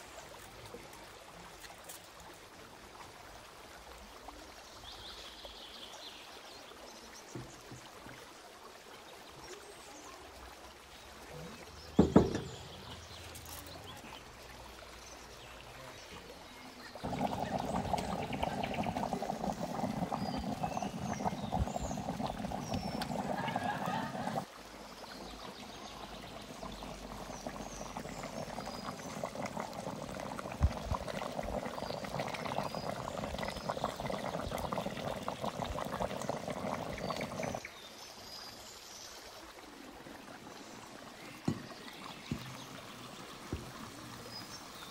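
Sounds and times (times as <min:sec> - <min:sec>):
liquid pouring: 0:11.9 - 0:14.1, 0:16.9 - 0:37.6, 0:39.8 - 0:44.9
loud knock: 0:12.0 - 0:12.6.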